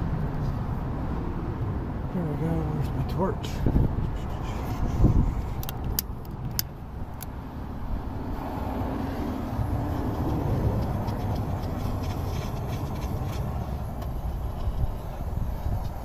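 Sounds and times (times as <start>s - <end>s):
rushing air noise: 3.6s - 16.0s.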